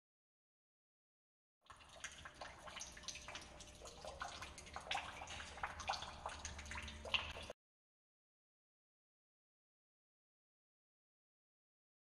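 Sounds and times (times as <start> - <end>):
low steady hum: 1.7 - 7.5
water dripping in a cave: 1.7 - 7.6.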